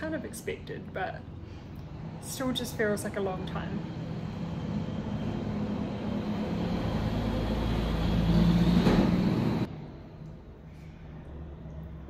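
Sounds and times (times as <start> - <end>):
passing vehicle engine: 1.5 - 9.7.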